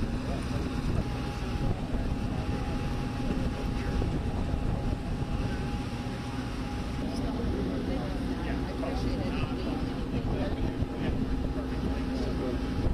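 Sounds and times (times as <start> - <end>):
low rumbling background noise: 0.0 - 12.9.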